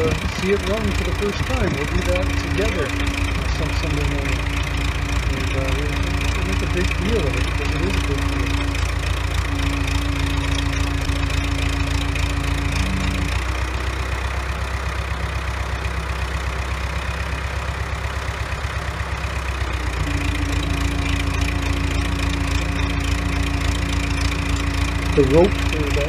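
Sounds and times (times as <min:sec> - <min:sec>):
forklift engine running: 0:00.0 - 0:26.0.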